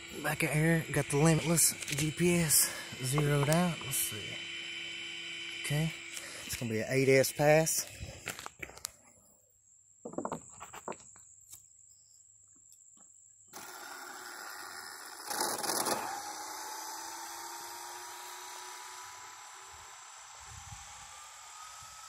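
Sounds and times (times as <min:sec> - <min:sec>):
electric motor whining: 0:00.0 - 0:08.5, 0:13.5 - 0:22.0.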